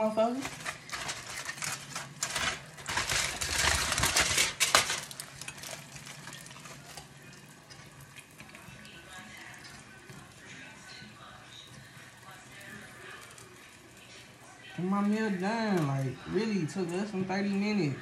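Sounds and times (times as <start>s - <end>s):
utensils clattering against pans: 0.0s - 7.1s.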